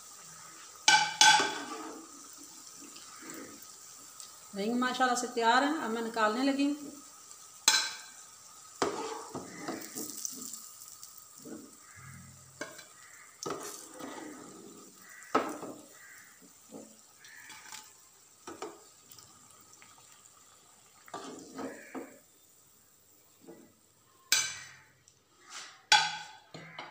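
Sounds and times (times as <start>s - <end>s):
food sizzling in hot oil: 0.0s - 26.8s
spoon scraping pan: 0.4s - 3.7s, 7.6s - 10.7s, 11.4s - 17.9s, 21.1s - 22.2s
metal spoon knocking against pan: 0.9s - 1.7s, 25.9s - 26.9s.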